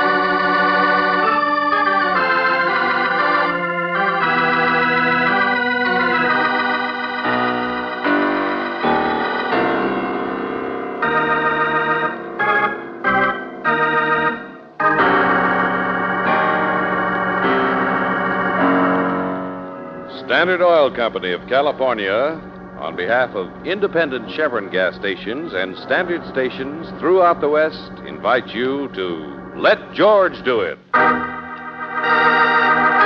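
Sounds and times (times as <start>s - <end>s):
radio drama theme music: 14.9s - 33.0s.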